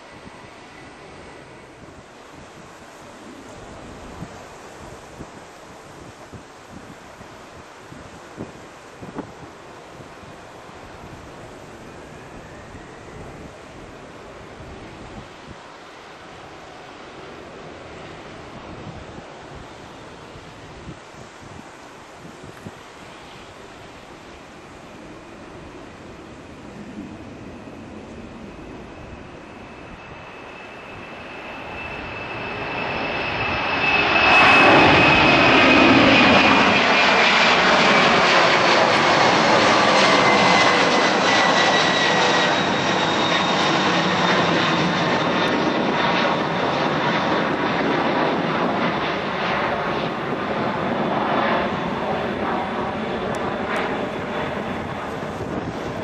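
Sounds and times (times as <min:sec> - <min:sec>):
jet engines roaring overhead: 0:00.0 - 0:56.0
high fan whine: 0:51.5 - 0:56.0.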